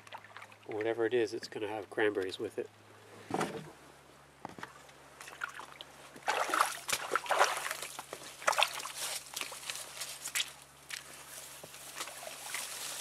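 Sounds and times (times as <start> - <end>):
rustling of reeds and branches: 6.0 - 13.0.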